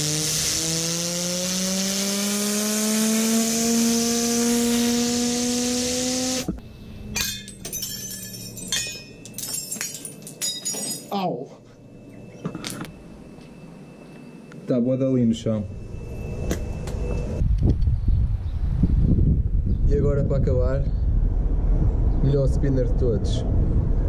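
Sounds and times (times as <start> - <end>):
air blow gun hissing: 0.0 - 6.5.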